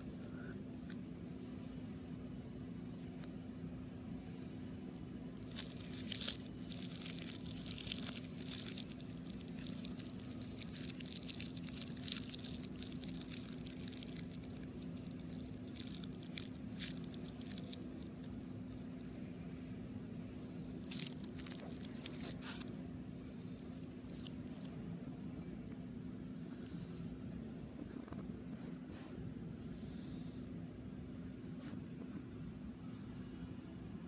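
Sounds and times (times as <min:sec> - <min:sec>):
steady low hum: 0:00.0 - 0:34.0
plastic crinkling in hands: 0:05.4 - 0:19.3, 0:20.4 - 0:22.8, 0:23.5 - 0:24.7.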